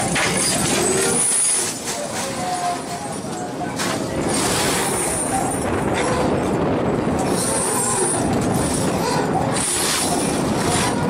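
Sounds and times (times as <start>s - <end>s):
boat engine and machinery running: 0.0s - 11.0s
high metallic squeals: 0.1s - 3.5s.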